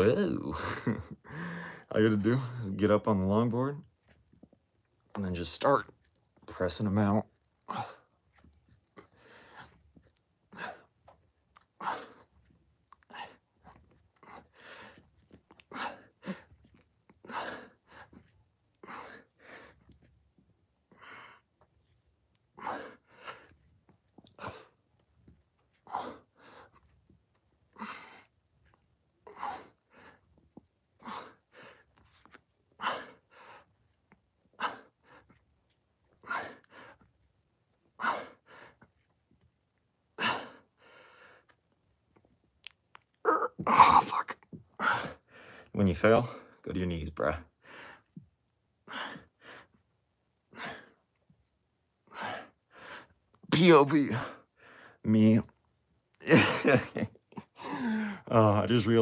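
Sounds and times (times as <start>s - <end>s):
man breathing hard: 1.2s - 2.6s, 14.2s - 15.1s, 57.5s - 58.3s.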